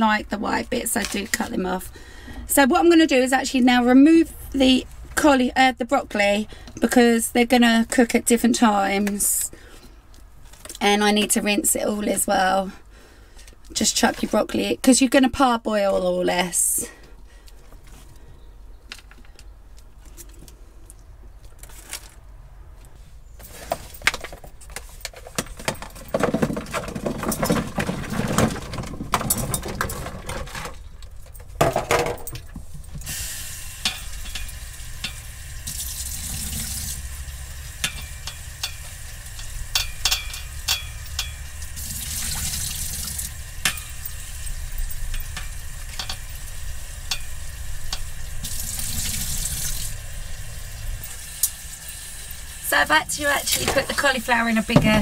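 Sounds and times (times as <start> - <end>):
vegetables knocking and clattering: 25.2 - 32.8, 53.5 - 55.0.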